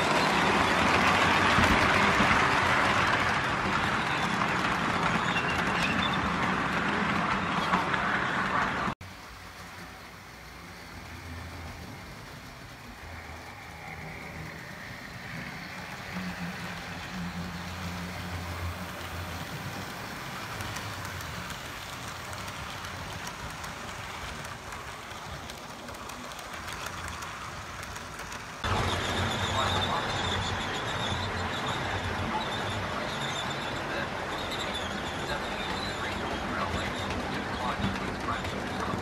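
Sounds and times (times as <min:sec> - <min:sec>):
model train wheels rumbling: 0:00.0 - 0:39.0.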